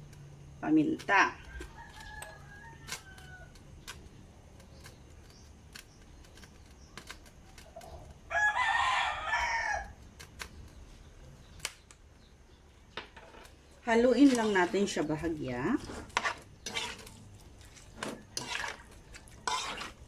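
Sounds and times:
rooster crowing: 1.5s - 3.6s, 8.3s - 10.0s.

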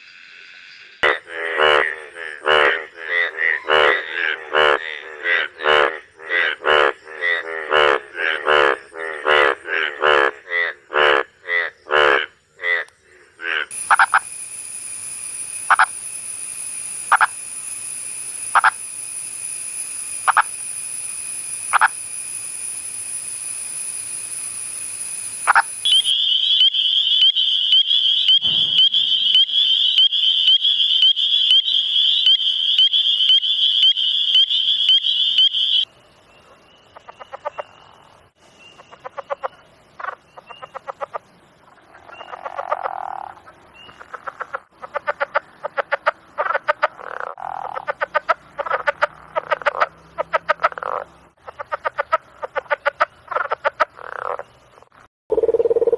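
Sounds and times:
loud frog calls: 0.0s - 35.9s, 36.5s - 55.9s
short pulsed frog calls: 0.0s - 55.9s
fast-pulsing frog trill: 1.0s - 12.8s, 13.4s - 35.8s, 42.0s - 43.4s, 44.1s - 54.5s, 55.3s - 55.9s
steady high drone: 13.7s - 26.2s.

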